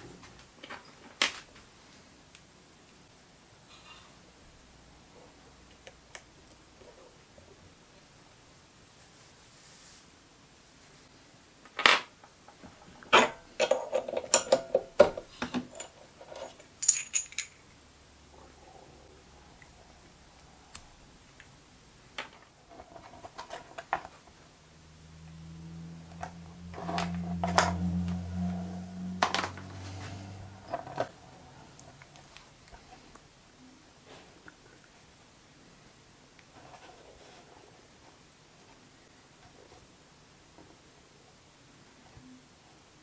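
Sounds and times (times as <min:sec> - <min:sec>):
low steady hum: 0:12.7 - 0:42.5
small metal parts clinking: 0:15.7 - 0:17.8.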